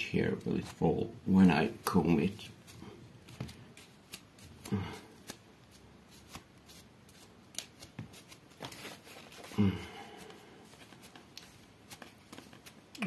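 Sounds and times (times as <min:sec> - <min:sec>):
comb scratching through hair: 0:01.5 - 0:09.5, 0:10.6 - 0:13.0.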